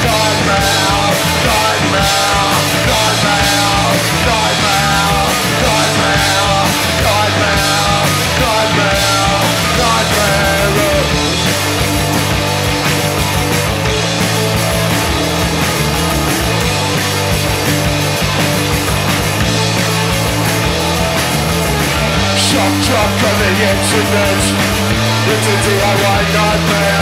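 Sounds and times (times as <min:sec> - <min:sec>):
singer shouting: 0:00.0 - 0:11.3, 0:22.2 - 0:27.0
punk rock band playing live: 0:00.0 - 0:27.0.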